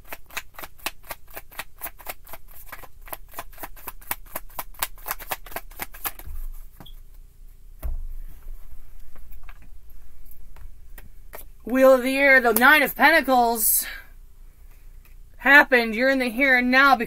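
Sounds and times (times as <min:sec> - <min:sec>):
cards being shuffled: 0:00.0 - 0:06.9
soft low thump: 0:07.8 - 0:08.7.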